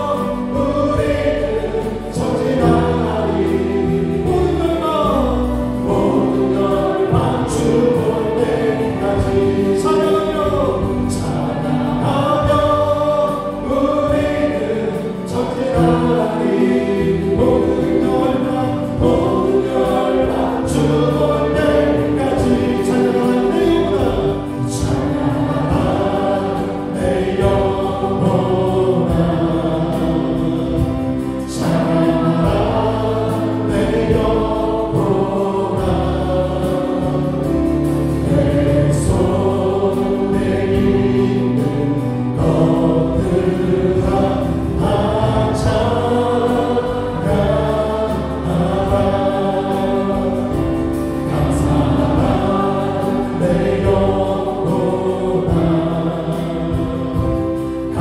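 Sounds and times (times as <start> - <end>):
group singing worship song: 0.0 - 58.0
live band playing: 0.0 - 58.0.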